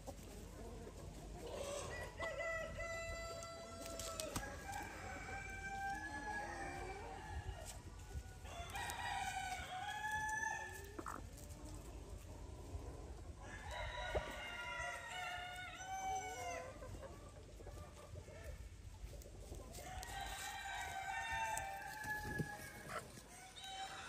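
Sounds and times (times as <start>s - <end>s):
roosters crowing: 1.5s - 11.2s, 13.4s - 16.8s, 19.7s - 24.0s.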